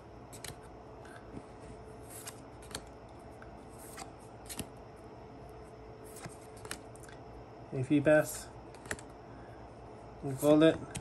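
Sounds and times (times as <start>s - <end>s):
trading cards sliding and flicking: 0.3s - 2.9s, 3.6s - 4.8s, 6.0s - 7.1s, 8.7s - 9.1s.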